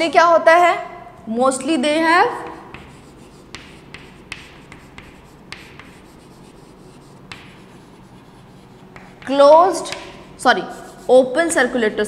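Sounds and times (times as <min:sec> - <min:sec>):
chalk writing on chalkboard: 0:02.2 - 0:11.7.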